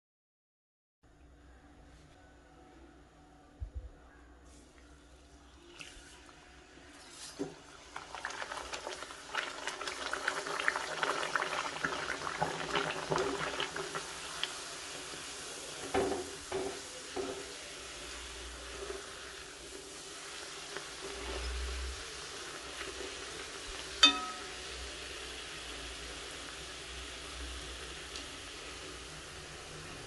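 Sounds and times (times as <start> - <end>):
dough deep-frying in oil: 4.5 - 30.0
metal skimmer clinking on pan: 24.0 - 24.7.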